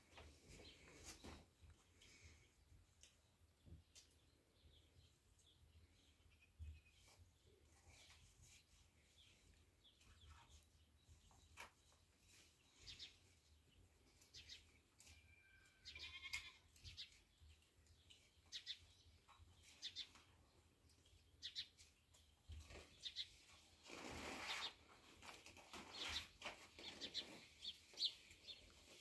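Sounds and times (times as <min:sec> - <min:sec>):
distant animal calls: 0:15.3 - 0:16.6
goat bleating: 0:15.8 - 0:16.7.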